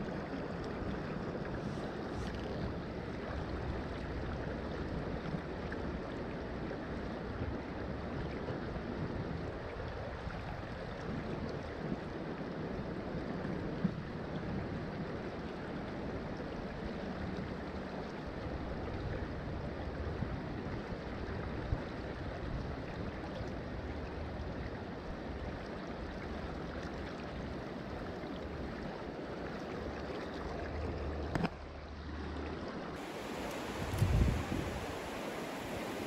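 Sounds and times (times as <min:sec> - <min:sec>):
creek water rushing: 0:32.3 - 0:36.0.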